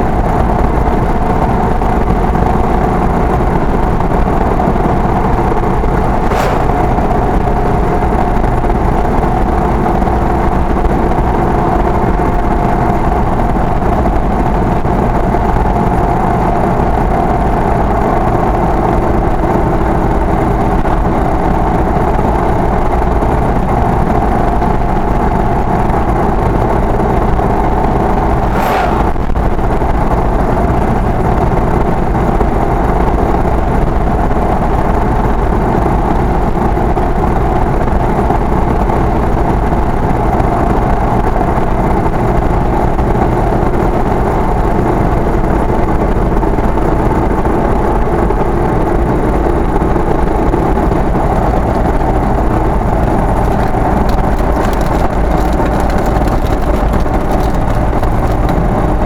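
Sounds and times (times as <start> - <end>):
vehicle engine cruising: 0.2 - 10.0, 11.1 - 36.4, 48.2 - 59.0
tyre and road rumble: 5.5 - 8.5, 26.1 - 30.3, 50.5 - 59.0
lorry passing with whoosh: 6.0 - 7.6, 28.2 - 29.6.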